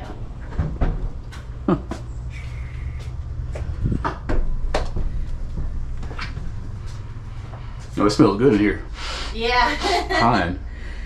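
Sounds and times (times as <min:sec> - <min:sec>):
low rumble: 0:00.0 - 0:08.4.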